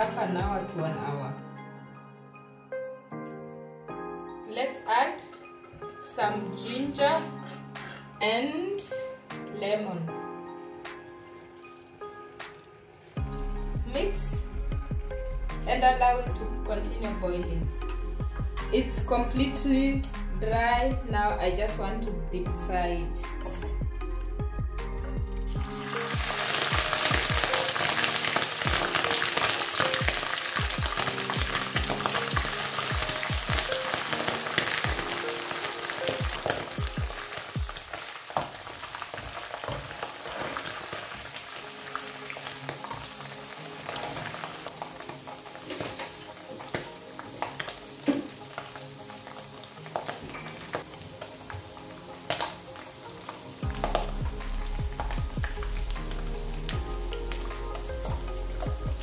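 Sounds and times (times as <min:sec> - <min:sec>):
fish deep-frying in oil: 0:25.5 - 0:59.0
oil crackles: 0:25.7 - 0:59.0.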